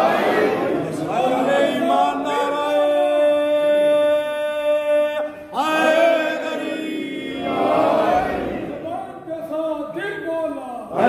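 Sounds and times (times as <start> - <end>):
man chanting: 2.1 - 5.8.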